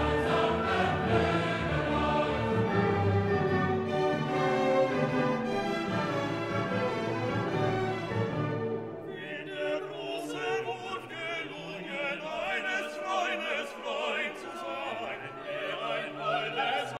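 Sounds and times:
classical music with operatic singing: 0:00.0 - 0:17.0.

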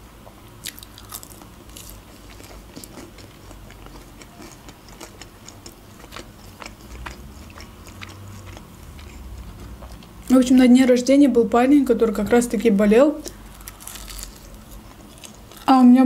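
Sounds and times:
person chewing crisp food: 0:00.6 - 0:10.4, 0:13.2 - 0:15.8.

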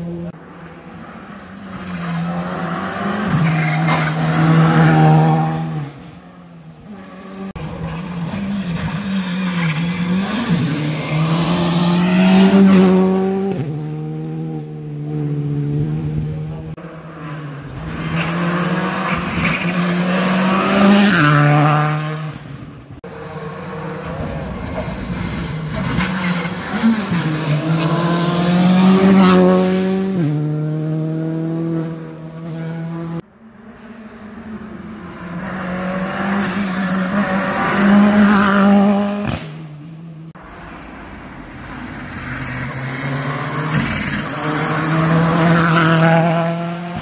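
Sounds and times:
rally car engine accelerating: 0:23.1 - 0:33.2.

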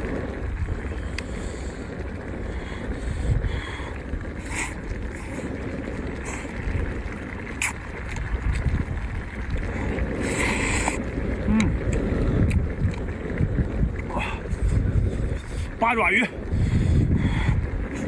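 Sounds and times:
wind buffeting microphone: 0:00.0 - 0:18.0
slurping noodles: 0:07.6 - 0:08.2, 0:09.5 - 0:13.0.

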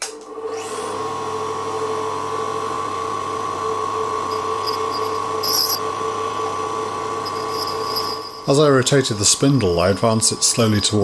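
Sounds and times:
grinder motor whine: 0:00.2 - 0:11.0
grinding wheel scratching on steel: 0:04.3 - 0:05.8, 0:07.2 - 0:08.6, 0:09.2 - 0:11.0.

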